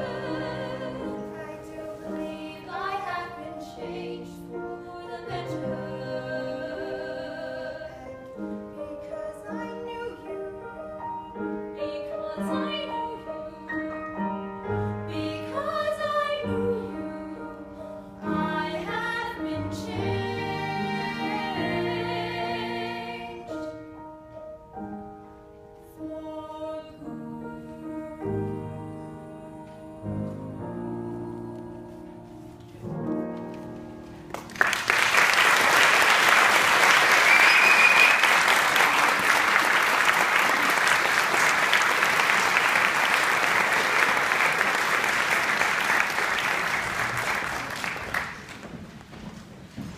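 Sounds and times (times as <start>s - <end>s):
grand piano chords: 0.0s - 37.2s
audience applause: 34.3s - 48.7s.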